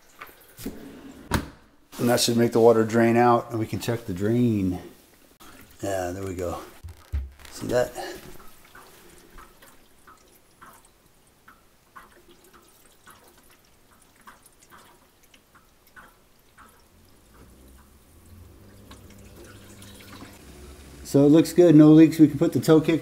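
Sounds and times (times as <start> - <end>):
water dripping: 5.1 - 23.0
water trickling down drain: 5.4 - 23.0.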